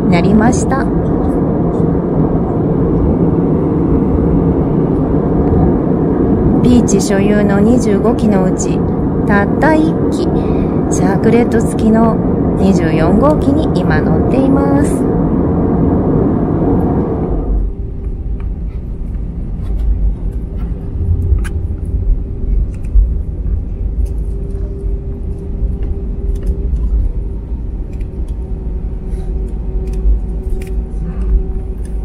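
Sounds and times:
loud jet roar: 0:00.0 - 0:17.8
engine hum: 0:00.0 - 0:32.0
wheels rumbling on tarmac: 0:00.0 - 0:32.0.

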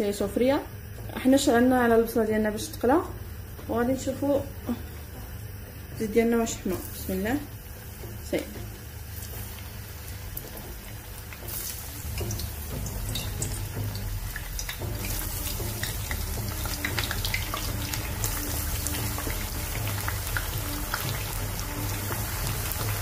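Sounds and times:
slices frying in hot oil: 0:05.5 - 0:23.0.

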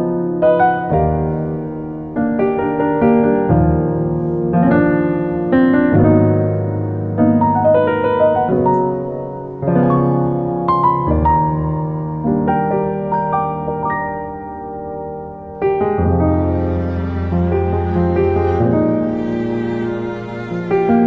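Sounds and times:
slow gentle piano music: 0:00.0 - 0:21.0.

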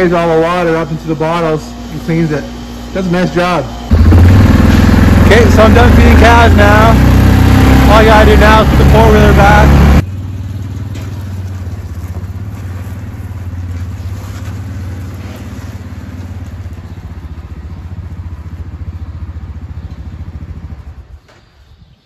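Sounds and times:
atv engine running: 0:00.0 - 0:21.3.

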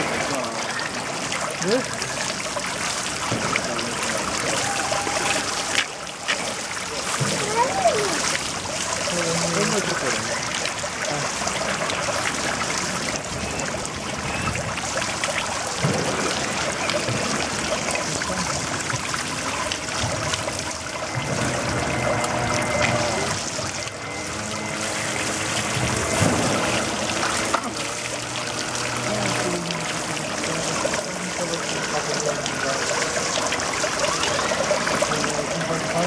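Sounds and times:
water trickling: 0:00.0 - 0:36.0.

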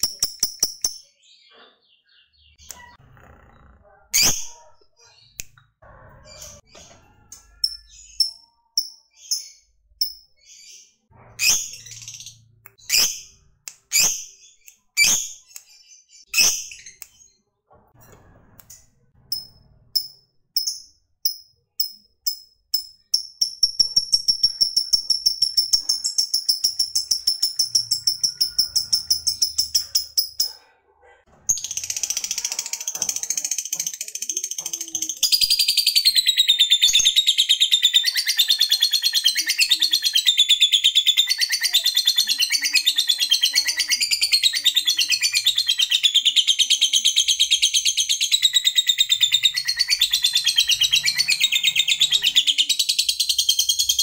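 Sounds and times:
lovebird chirping and trilling: 0:00.0 - 0:03.0, 0:03.8 - 0:17.4, 0:19.3 - 0:30.6, 0:31.5 - 0:54.0.

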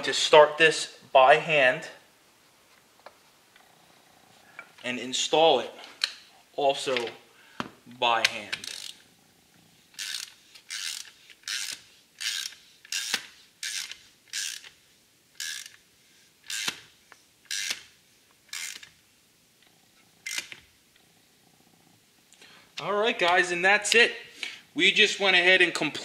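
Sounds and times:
hand ratchet clicking: 0:08.2 - 0:09.0, 0:09.9 - 0:14.8, 0:15.4 - 0:15.8, 0:16.4 - 0:16.8, 0:17.4 - 0:17.9, 0:18.5 - 0:18.9.

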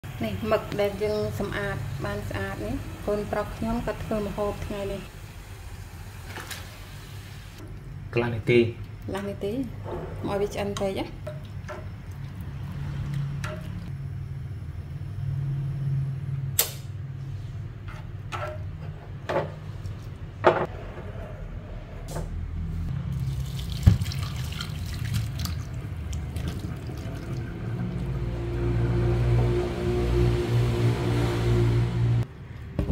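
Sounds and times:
water poured into steel sink: 0:23.1 - 0:28.3
water simmering in a saucepan: 0:23.2 - 0:29.6.

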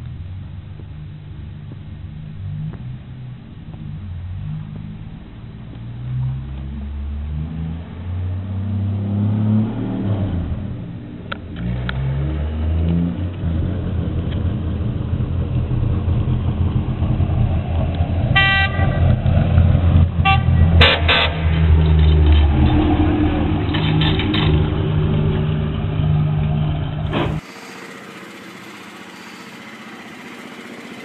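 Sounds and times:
truck horn toots: 0:18.3 - 0:19.3, 0:20.2 - 0:21.7
model truck engine running: 0:23.7 - 0:31.0.

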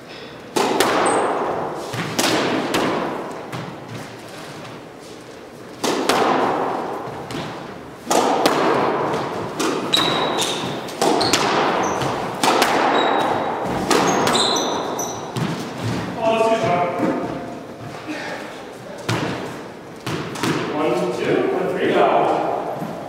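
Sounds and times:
squash ball hits echoing: 0:00.5 - 0:04.2, 0:05.7 - 0:17.7, 0:19.0 - 0:21.0
shoes squeaking on wooden floor: 0:09.2 - 0:20.3.

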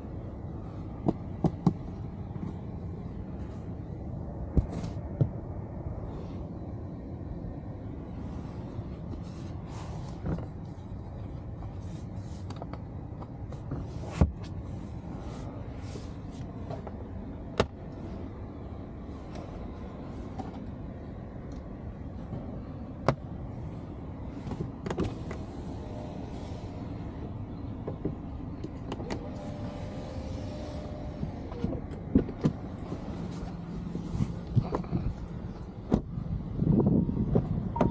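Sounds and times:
steady low hum: 0:00.0 - 0:37.9
clicks and knocks of handling seats: 0:00.9 - 0:02.9, 0:09.0 - 0:11.8, 0:12.4 - 0:14.6, 0:24.3 - 0:25.5, 0:27.7 - 0:29.8, 0:31.1 - 0:36.2.

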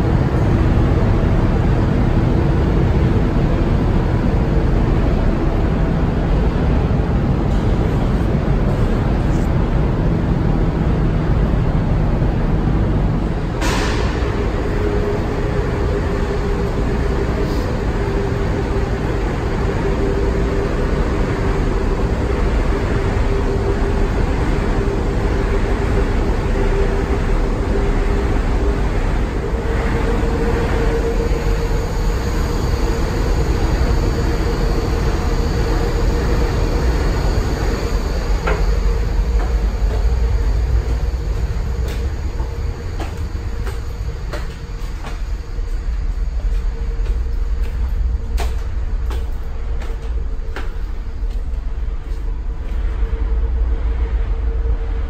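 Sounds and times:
machinery rumble and hum: 0:00.0 - 0:55.0.

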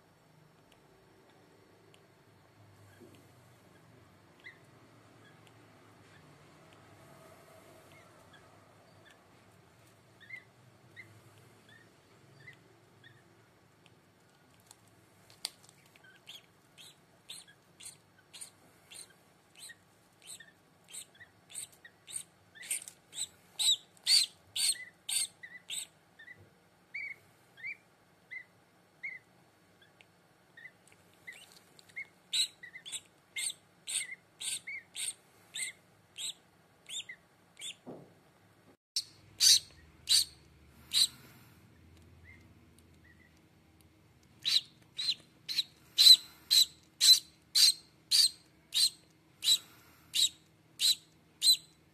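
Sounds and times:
duckling peeping: 0:03.7 - 0:06.4, 0:07.8 - 0:09.3, 0:10.2 - 0:13.3, 0:15.8 - 0:37.9, 0:39.0 - 0:43.4, 0:44.4 - 0:51.8.

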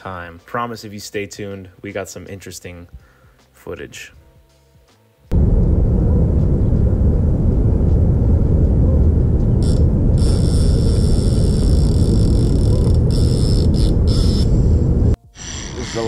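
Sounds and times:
wind buffeting microphone: 0:05.3 - 0:15.2
faint high buzz: 0:09.5 - 0:16.0.

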